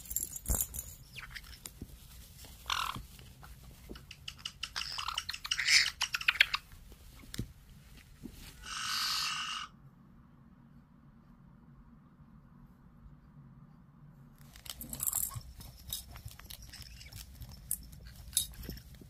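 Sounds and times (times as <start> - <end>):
parrots scuffling and clicking beaks: 0.0 - 8.7, 14.4 - 19.0
parrot squawks and chirps: 2.6 - 3.0, 4.0 - 6.6, 8.6 - 9.8
held parrot call: 8.6 - 9.7.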